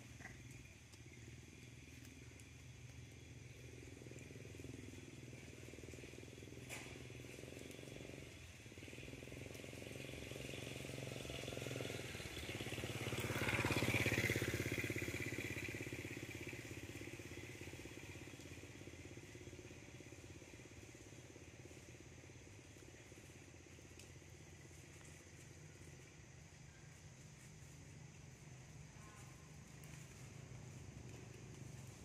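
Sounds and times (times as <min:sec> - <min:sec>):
motorbike engine passing by: 0:02.8 - 0:32.0.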